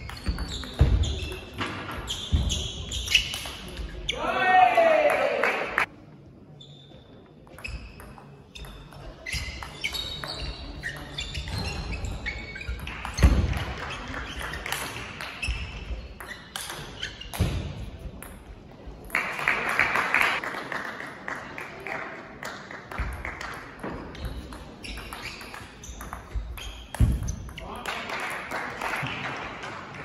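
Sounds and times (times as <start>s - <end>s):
people clapping: 4.8s - 5.9s, 19.1s - 23.7s, 27.6s - 30.0s.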